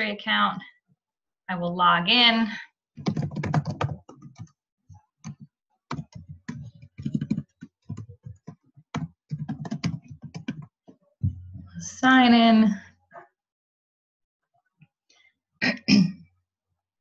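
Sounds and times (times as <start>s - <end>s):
typing on a keyboard: 3.0s - 4.6s, 5.2s - 11.0s.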